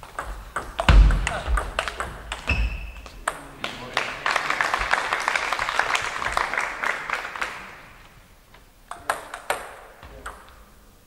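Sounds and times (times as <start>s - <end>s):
audience applause: 3.6s - 8.2s.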